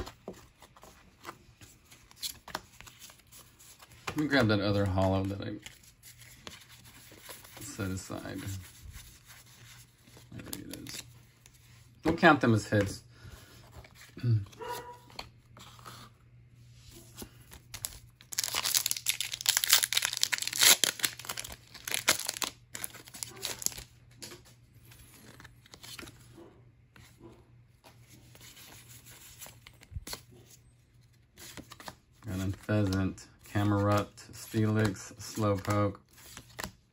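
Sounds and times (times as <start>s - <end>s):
cards rustling: 0.0s - 16.2s, 16.9s - 26.4s, 27.8s - 36.9s
foil wrapper tearing and crinkling: 17.7s - 23.9s.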